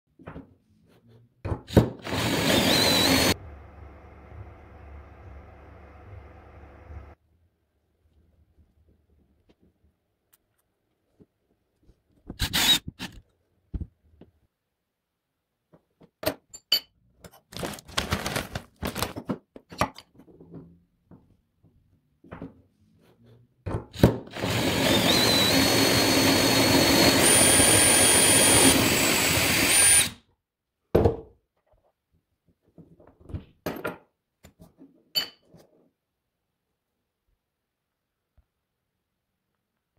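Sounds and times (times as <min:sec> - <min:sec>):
coffee grinder grinding beans: 0:02.0 - 0:04.3, 0:24.3 - 0:30.1
cordless drill motor whine: 0:02.0 - 0:07.2, 0:12.4 - 0:13.0, 0:24.3 - 0:30.2.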